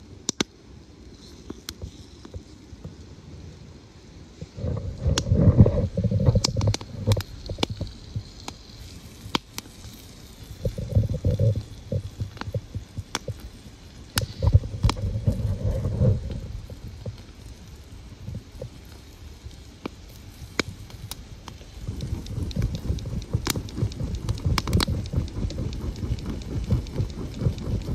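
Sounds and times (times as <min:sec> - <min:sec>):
campfire crackling and popping: 0:00.0 - 0:03.1, 0:04.4 - 0:27.9
wind buffeting microphone: 0:04.4 - 0:08.4, 0:09.9 - 0:18.8, 0:20.4 - 0:27.9.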